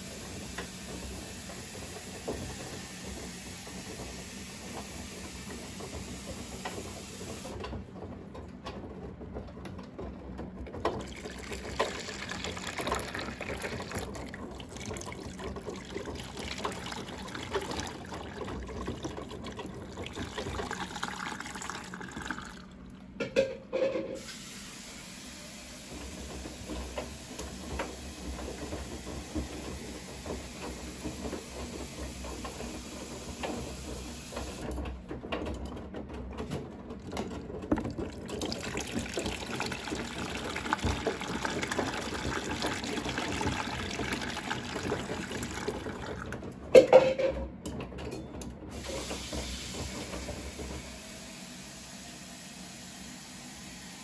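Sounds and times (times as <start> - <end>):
washing machine running water: 0.0 - 54.0
brief knocks in washing machine: 48.8 - 50.9.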